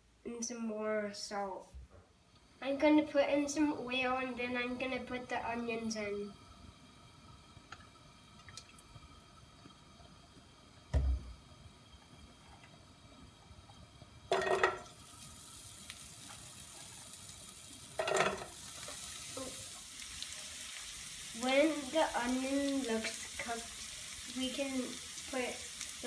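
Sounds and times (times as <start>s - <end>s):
onion sizzling in pan: 2.5s - 26.0s
onion crackling into hot oil: 7.4s - 26.0s
dull thump: 10.9s - 11.3s.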